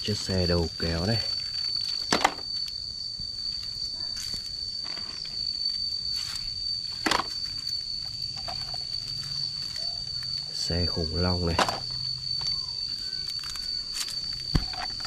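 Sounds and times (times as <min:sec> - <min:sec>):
high-pitched insect drone: 0:00.0 - 0:15.0
plastic toys knocking into basket: 0:02.1 - 0:02.4, 0:11.6 - 0:11.8.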